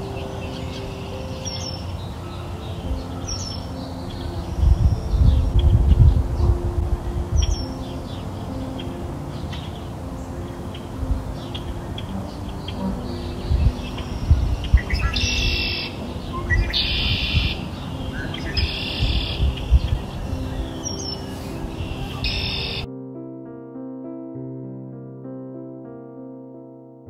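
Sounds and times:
faint background tones: 0.0s - 22.9s
gentle piano melody: 0.0s - 27.0s
bird trilling: 10.7s - 22.9s.

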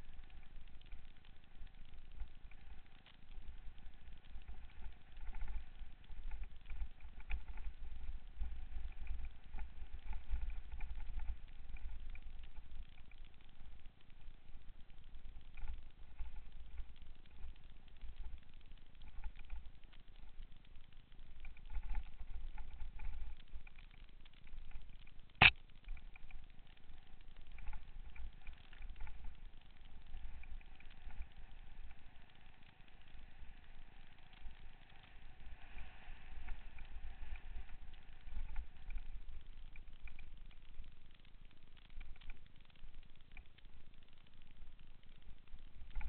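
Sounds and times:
faint steady whine: 0.0s - 46.0s
sharp click: 25.4s - 26.2s.

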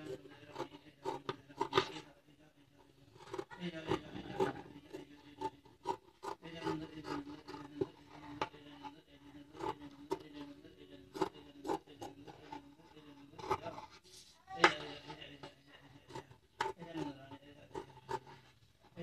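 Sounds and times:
scissors snipping fabric: 0.0s - 2.0s, 3.1s - 8.8s, 9.5s - 10.4s, 11.1s - 13.9s, 16.0s - 18.4s.

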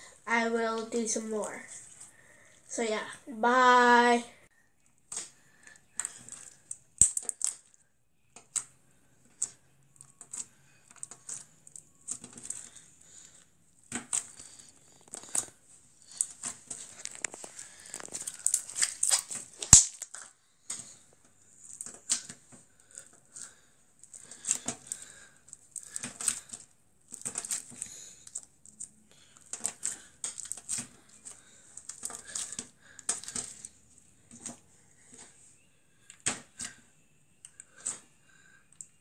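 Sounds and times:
slime crackling and popping: 4.9s - 7.8s, 9.3s - 13.2s, 13.8s - 21.0s, 21.6s - 34.6s
slime snapping: 6.0s - 7.7s, 18.0s - 20.8s, 25.8s - 33.7s.

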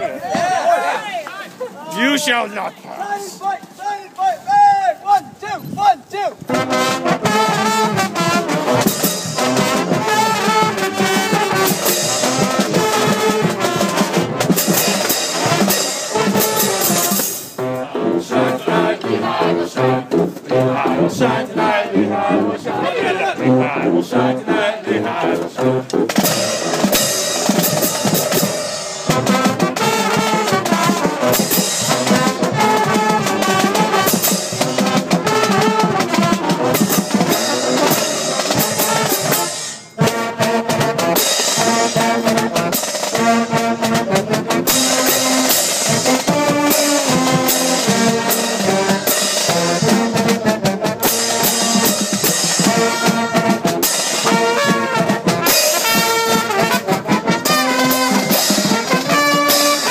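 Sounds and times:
trumpets: 1.9s - 59.9s
steady drum beat: 6.4s - 21.8s, 25.4s - 59.9s
low brass: 6.4s - 59.9s
trombones: 6.4s - 59.9s
saxophones: 23.3s - 59.9s.

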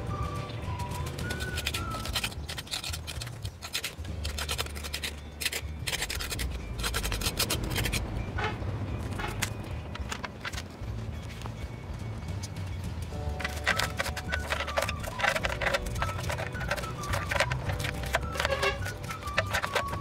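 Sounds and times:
trowel scraping cement: 0.8s - 8.0s, 13.3s - 20.0s.

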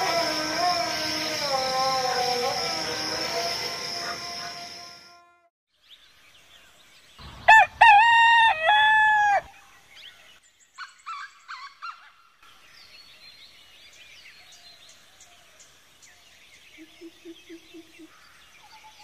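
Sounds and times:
rooster crowing: 0.0s - 4.9s, 7.5s - 9.6s.

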